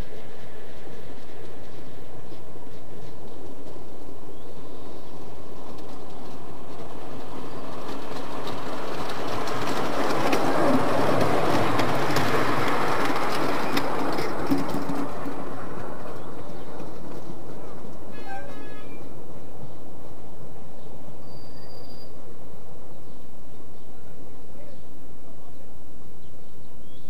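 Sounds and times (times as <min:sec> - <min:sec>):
wheels clicking over rail joints: 0:00.0 - 0:20.3
miniature train rolling past: 0:00.0 - 0:27.0.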